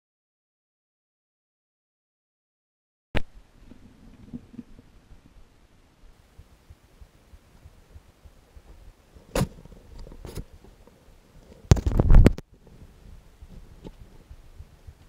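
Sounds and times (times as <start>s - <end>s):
clothing rubbing against camera: 8.5s - 14.7s.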